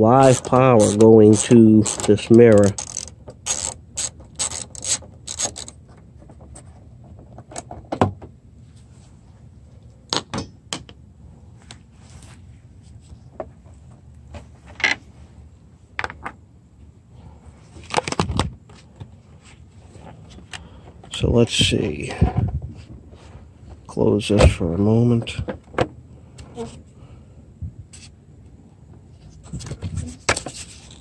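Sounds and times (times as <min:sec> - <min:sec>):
socket ratchet clicking: 0:00.2 - 0:05.8.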